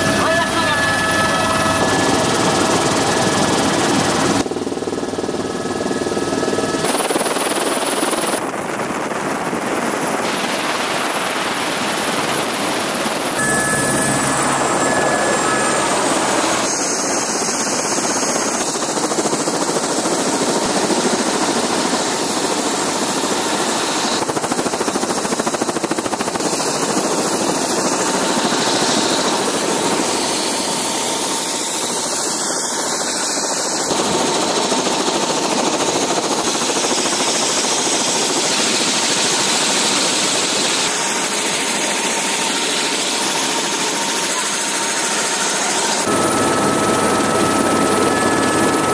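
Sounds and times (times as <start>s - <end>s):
helicopter rotor and engine: 0.0s - 48.9s
turbine whine: 0.0s - 48.9s.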